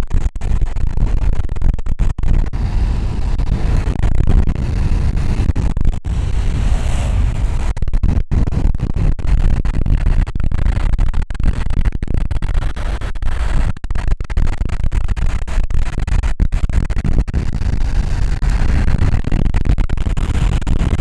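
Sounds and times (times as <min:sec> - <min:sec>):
wind buffeting microphone: 0:02.5 - 0:10.1.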